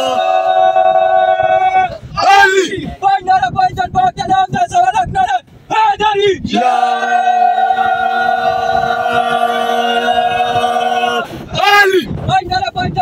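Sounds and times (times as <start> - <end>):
young men chanting: 0.0 - 2.8, 5.9 - 12.0
men shouting in unison: 0.0 - 3.0, 5.9 - 12.1.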